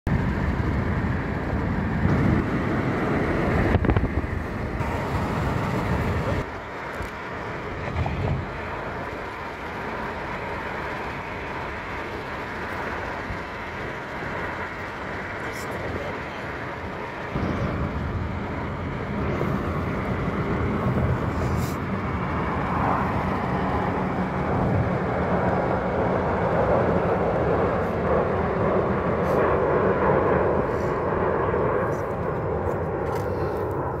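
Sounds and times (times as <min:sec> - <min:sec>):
jet engines roaring: 0:00.1 - 0:34.0
low rumble: 0:00.1 - 0:34.0.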